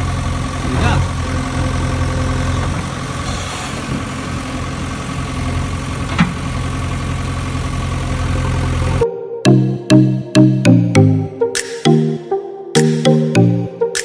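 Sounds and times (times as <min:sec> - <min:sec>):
engine idling: 0:00.0 - 0:09.0.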